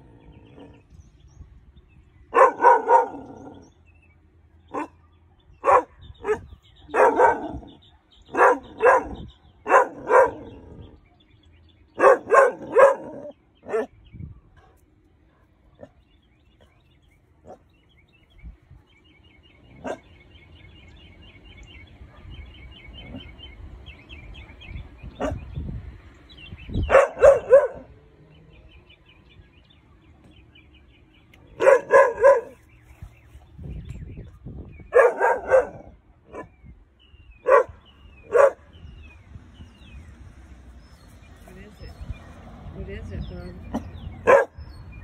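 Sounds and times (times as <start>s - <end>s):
puppy barking: 2.3s - 3.4s, 4.7s - 10.5s, 12.0s - 13.9s, 26.9s - 27.9s, 31.6s - 32.6s, 34.9s - 36.5s, 37.4s - 38.6s, 43.7s - 44.6s.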